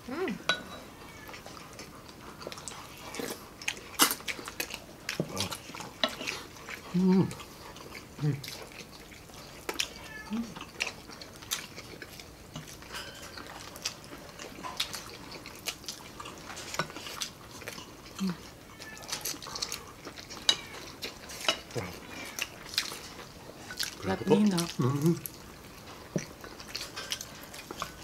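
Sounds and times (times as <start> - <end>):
spoons clinking against bowls: 0.4 - 0.9, 12.6 - 13.6, 20.3 - 20.8
chewing and lip-smacking: 1.1 - 28.0.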